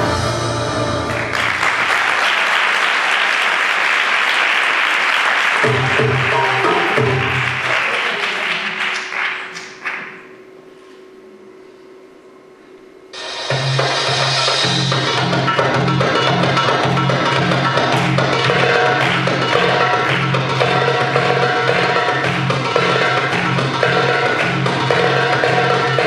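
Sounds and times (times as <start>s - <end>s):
audience applauding: 1.0s - 10.3s, 16.9s - 26.0s
belly-dance music: 13.5s - 26.0s.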